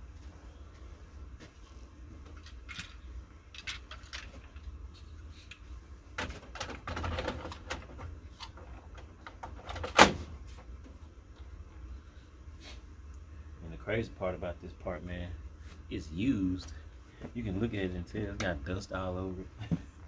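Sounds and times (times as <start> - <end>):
plastic parts clicking and knocking: 2.3 - 4.7, 6.2 - 10.2
plastic scraping and rattling: 6.2 - 10.0.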